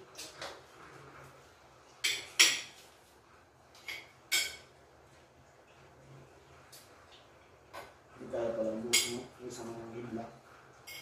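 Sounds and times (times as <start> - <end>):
spoons clinking on ceramic plates: 2.0 - 2.9, 3.8 - 4.8, 8.8 - 9.4.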